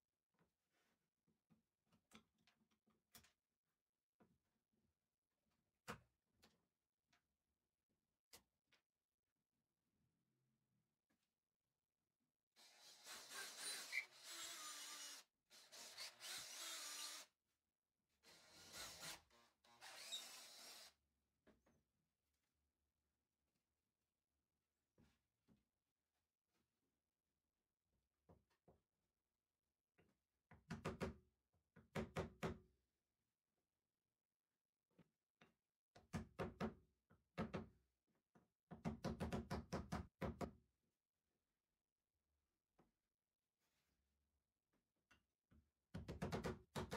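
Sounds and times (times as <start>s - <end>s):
cordless drill boring through plywood: 12.6s - 17.3s, 18.2s - 21.0s.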